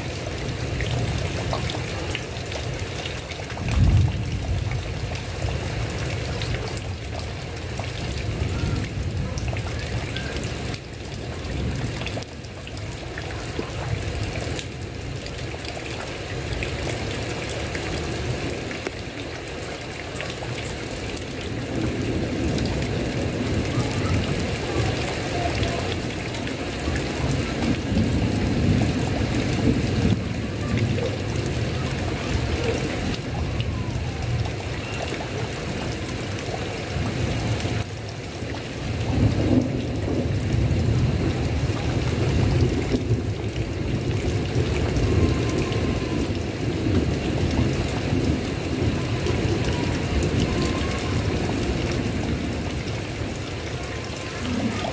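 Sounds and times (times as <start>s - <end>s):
heavy rain on a tile roof: 0.0s - 54.9s.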